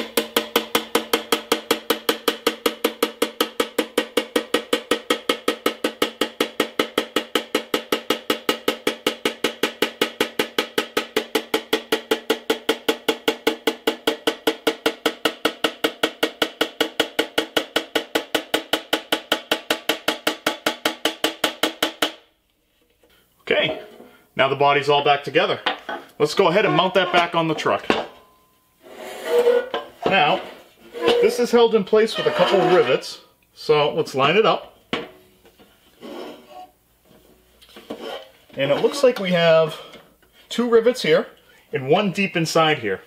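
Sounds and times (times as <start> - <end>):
hammer tapping ringing sheet metal: 0.0 - 22.2.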